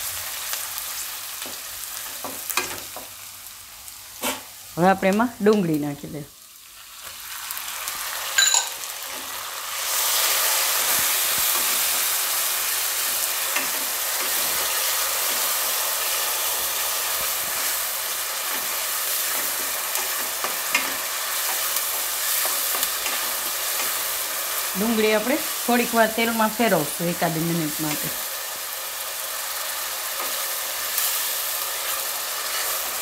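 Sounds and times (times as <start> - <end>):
onion sizzling in oil: 0.0 - 33.0
sharp clink: 8.4 - 8.8.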